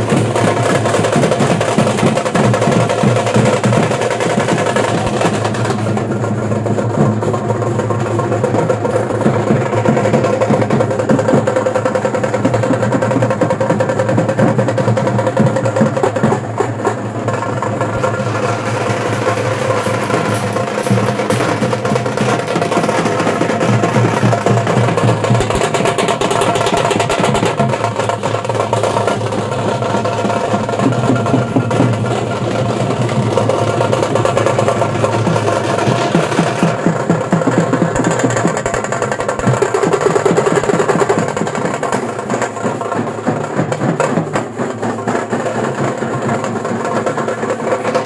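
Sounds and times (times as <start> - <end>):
drum-led music: 0.0 - 48.0.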